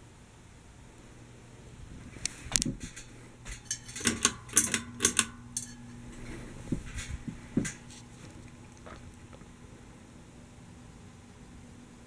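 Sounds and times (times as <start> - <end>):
ceiling fan humming: 0.0 - 12.0
sharp clinks and taps: 2.9 - 6.0.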